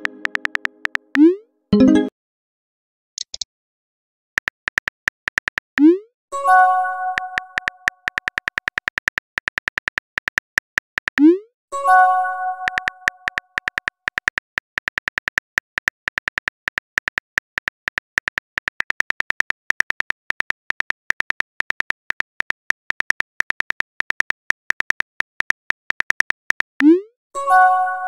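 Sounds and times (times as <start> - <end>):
phone keyboard typing clicks: 0.0 - 1.3, 4.4 - 5.9, 7.1 - 11.3, 12.6 - 26.9.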